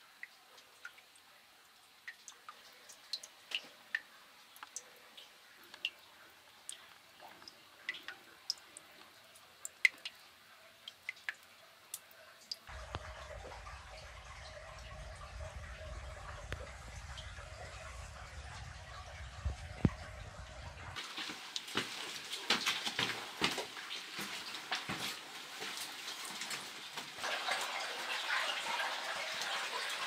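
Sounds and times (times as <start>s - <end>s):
water dripping in a cave: 0.0s - 30.0s
low steady rumble: 12.7s - 21.0s.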